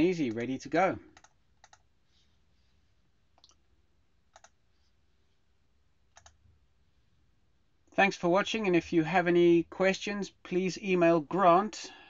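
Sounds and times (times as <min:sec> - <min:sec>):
computer mouse clicks: 0:01.1 - 0:01.9, 0:03.4 - 0:03.6, 0:04.3 - 0:04.6, 0:06.1 - 0:06.4.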